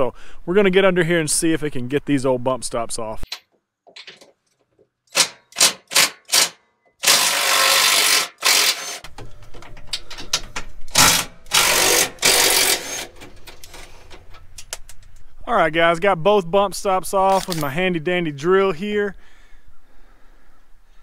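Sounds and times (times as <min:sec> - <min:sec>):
impact driver bursts: 0:05.1 - 0:09.1, 0:10.9 - 0:13.2.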